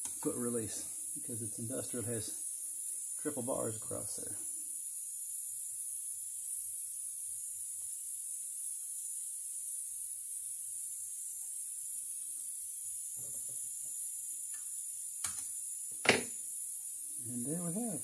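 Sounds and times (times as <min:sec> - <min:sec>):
steam engine hissing: 0:17.2 - 0:18.0.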